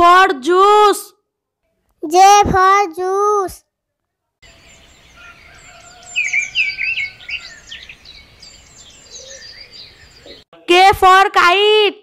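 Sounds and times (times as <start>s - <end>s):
birds chirping: 4.4s - 10.6s.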